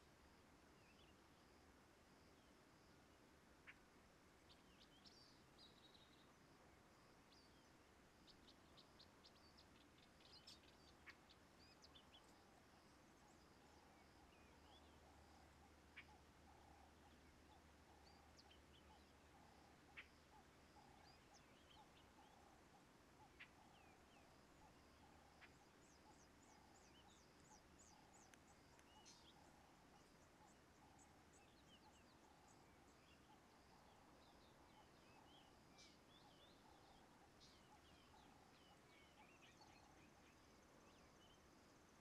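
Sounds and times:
small birds chirping: 0:00.0 - 0:42.0
soft clicks: 0:28.2 - 0:29.0.

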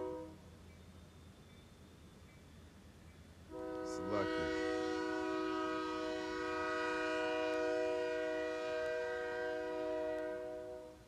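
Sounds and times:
train horn blast: 0:00.0 - 0:00.4, 0:03.5 - 0:11.0.

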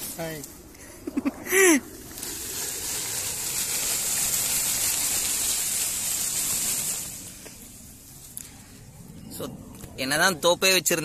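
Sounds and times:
steady rushing hiss: 0:00.0 - 0:11.0.

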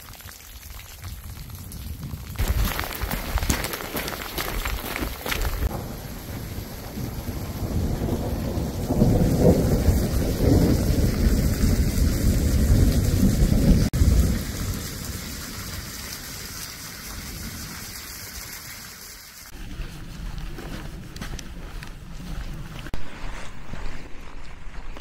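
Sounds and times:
rain hissing: 0:00.0 - 0:20.0
low thunder rumble: 0:05.5 - 0:16.0.

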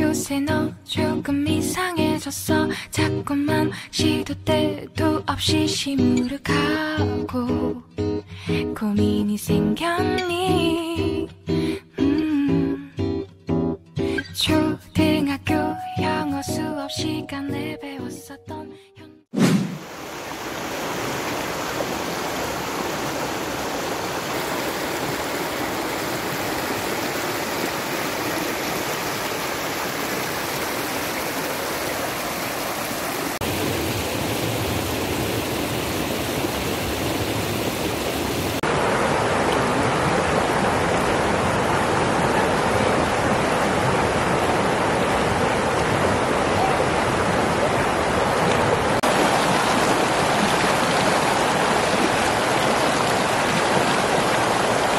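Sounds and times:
river water rushing: 0:19.7 - 0:54.9.

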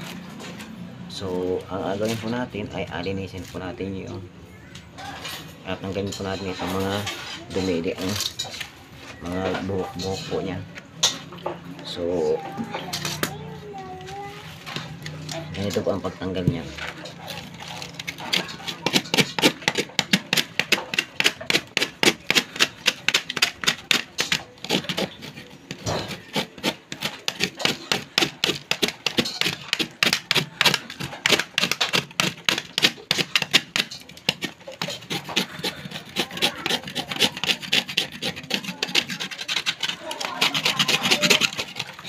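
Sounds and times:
knife blade scraping coconut fibres: 0:14.6 - 0:42.0.

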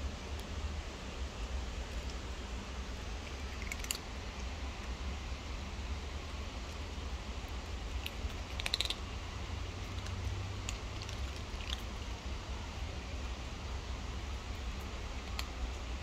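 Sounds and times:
cats crunching dry kibble: 0:01.3 - 0:05.6, 0:06.3 - 0:12.3, 0:14.2 - 0:16.0.

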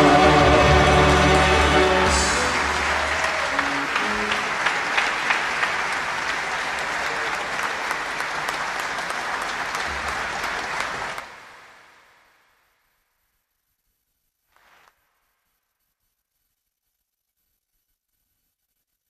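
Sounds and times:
audience applauding: 0:00.0 - 0:12.5.

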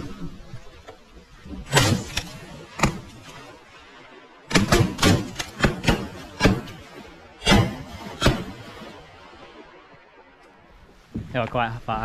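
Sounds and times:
shotgun shots: 0:01.7 - 0:03.6, 0:04.5 - 0:09.1.

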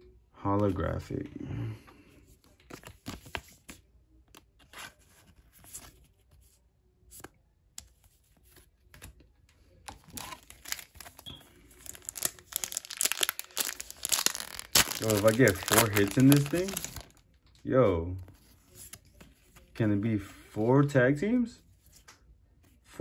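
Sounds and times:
foil wrapper crinkling and tearing: 0:10.0 - 0:17.3.

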